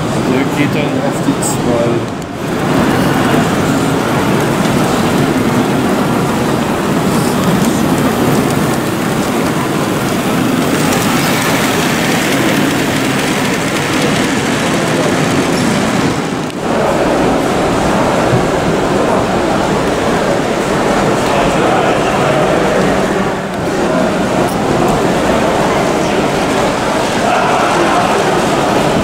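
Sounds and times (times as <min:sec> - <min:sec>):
busy hall din: 0:00.0 - 0:29.0
model trains running on track: 0:00.0 - 0:29.0.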